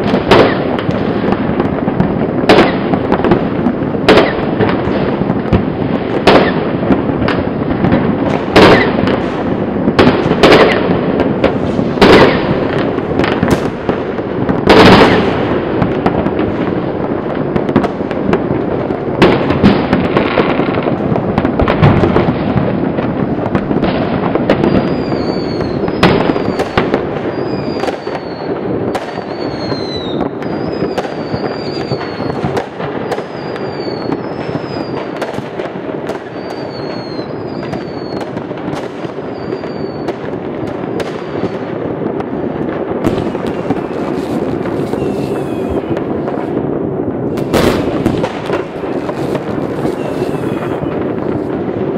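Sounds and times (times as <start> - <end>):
distant fireworks crackling: 0.0 - 51.9
loud close firework bangs: 0.0 - 51.9
short falling whistles: 36.4 - 38.2, 44.8 - 45.9.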